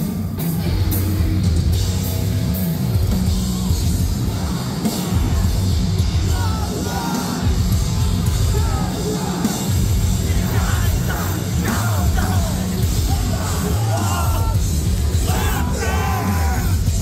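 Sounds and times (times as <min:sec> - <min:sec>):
metal band playing live: 0:00.0 - 0:17.0
fans yelling along: 0:03.3 - 0:17.0
screamed vocals: 0:10.3 - 0:14.6, 0:15.2 - 0:16.9.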